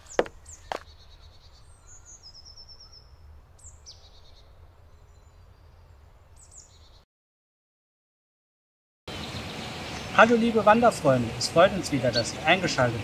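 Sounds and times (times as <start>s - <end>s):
footstep on gravel: 0.0s - 0.9s
faint birdsong: 0.0s - 7.1s, 9.1s - 13.0s.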